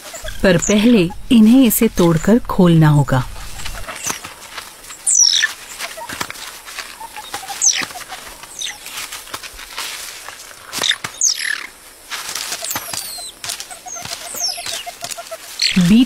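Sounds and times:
animal rustling through grass: 0.0 - 16.0
high whistled calls: 5.1 - 6.1, 12.6 - 16.0.

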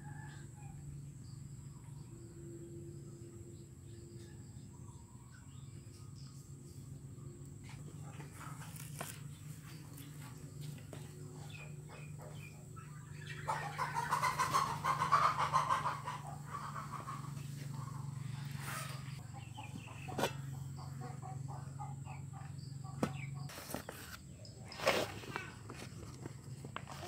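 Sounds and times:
steady low hum: 0.0 - 27.0
animal clucking: 11.0 - 23.5.

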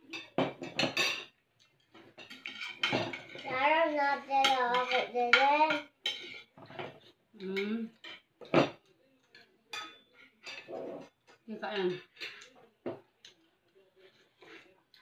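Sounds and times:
cutlery clinking on plates: 0.0 - 3.6, 4.4 - 7.1, 8.0 - 13.4.

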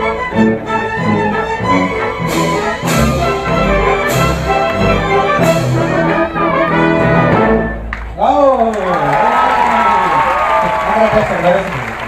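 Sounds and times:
orchestra playing sustained notes: 0.0 - 8.0
sharp orchestral hits: 1.1 - 7.9.

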